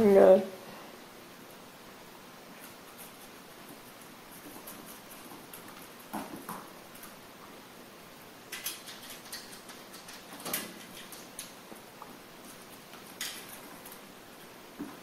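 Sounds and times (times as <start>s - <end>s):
puppy claws clicking on tile: 8.5s - 14.0s.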